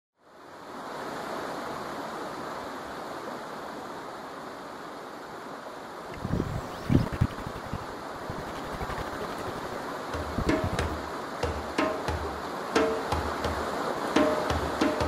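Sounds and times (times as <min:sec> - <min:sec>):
water rushing: 0:06.1 - 0:11.3.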